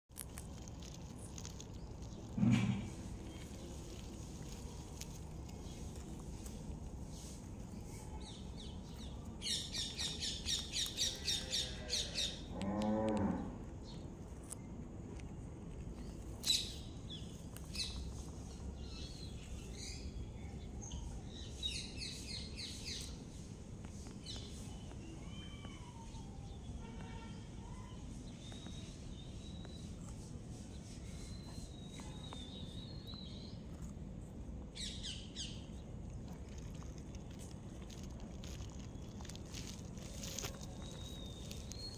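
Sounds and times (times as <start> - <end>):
low animal call: 10.9 - 13.6.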